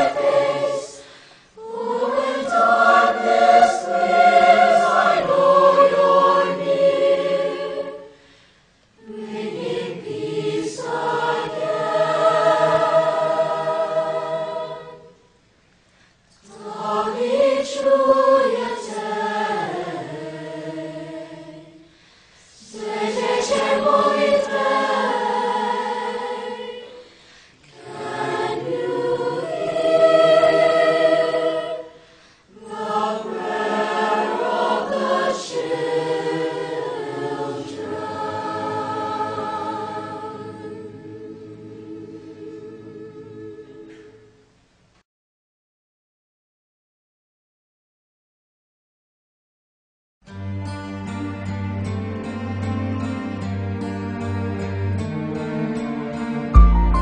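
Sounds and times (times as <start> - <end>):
choir singing slow phrases: 0.0 - 15.5, 16.4 - 44.6.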